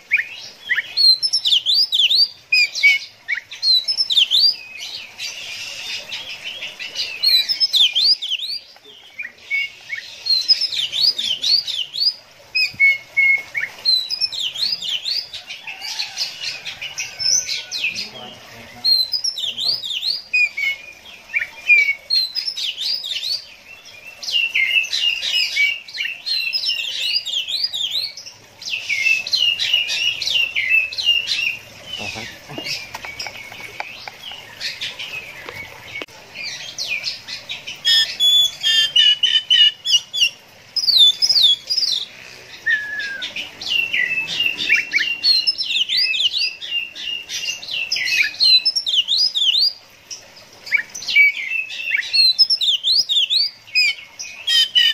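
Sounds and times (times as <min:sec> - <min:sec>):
bird singing whistled notes: 0:00.0 - 0:04.8, 0:07.2 - 0:15.2, 0:37.9 - 0:49.8.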